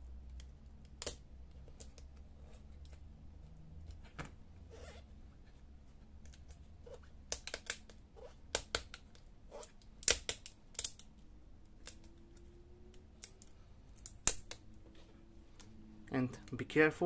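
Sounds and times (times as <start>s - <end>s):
adhesive tape peeling crackles: 12.9s - 14.7s.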